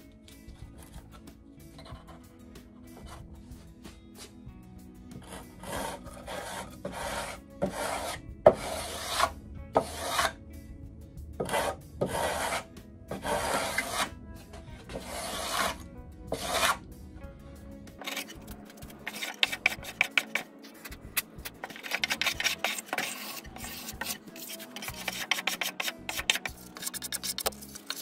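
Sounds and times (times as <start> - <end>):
sanding block rasping on wood: 5.3 - 10.4, 11.5 - 12.6, 13.2 - 14.1, 15.0 - 16.8, 19.1 - 20.5, 21.6 - 28.0.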